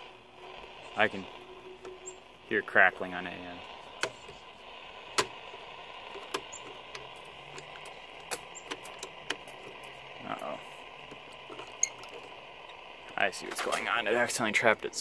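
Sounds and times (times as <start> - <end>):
radio static crackles: 0.0 - 15.0
radio static hiss: 0.0 - 15.0.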